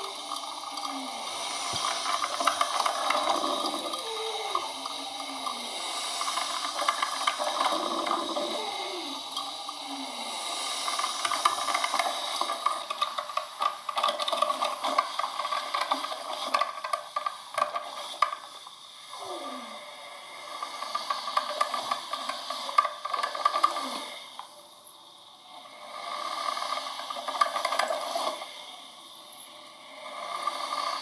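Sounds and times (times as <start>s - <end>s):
sputtering crackles: 0.0s - 19.7s, 20.3s - 24.9s, 25.8s - 31.0s
falling gurgles: 0.0s - 24.4s
coffee machine steam hiss: 0.0s - 31.0s.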